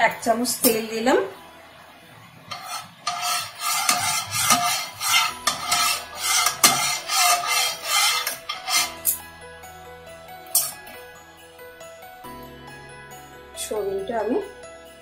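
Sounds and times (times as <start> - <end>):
faint background music: 0.0 - 15.0
metal spatula scraping a pan: 2.5 - 9.2, 10.5 - 10.8.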